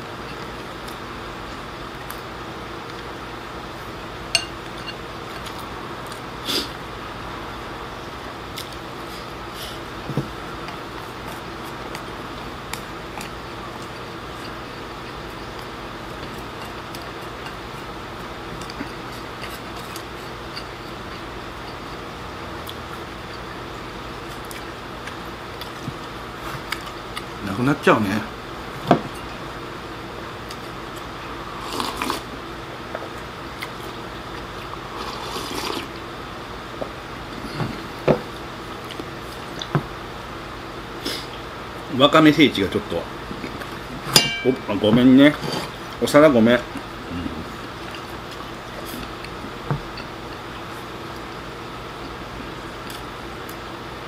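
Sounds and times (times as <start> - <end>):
person chewing: 10.6 - 17.9, 18.5 - 22.0, 24.3 - 27.4, 30.4 - 32.3, 33.0 - 36.0, 46.7 - 53.6
soup slurping: 35.0 - 35.9.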